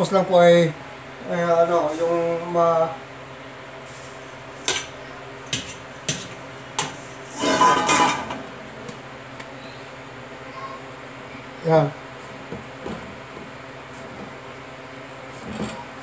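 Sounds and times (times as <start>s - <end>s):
metal bowl and utensils clinking: 5.5s - 8.4s
utensils clattering: 5.5s - 8.4s.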